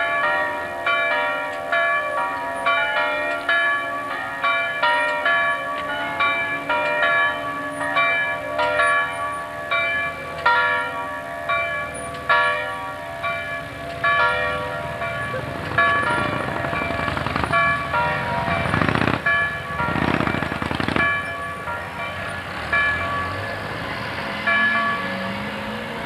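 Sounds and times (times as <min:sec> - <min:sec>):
church bells pealing: 0:00.0 - 0:26.0
passing road vehicles: 0:00.0 - 0:26.0
motorcycle passing: 0:14.8 - 0:21.6, 0:22.3 - 0:26.0.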